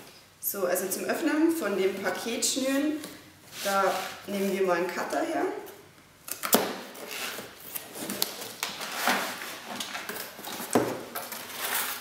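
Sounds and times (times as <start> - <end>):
cardboard box scraping and rustling: 11.3 - 12.0.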